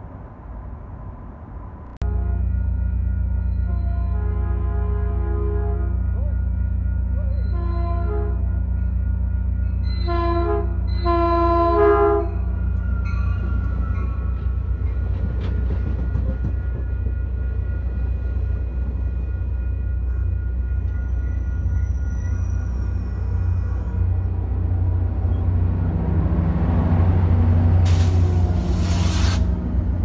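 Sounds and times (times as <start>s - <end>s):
locomotive engine drone: 0.0s - 30.0s
locomotive horn blasts: 2.0s - 8.6s, 10.0s - 12.5s
train wheels rumbling on rails: 10.4s - 30.0s
high squeal: 20.8s - 24.2s.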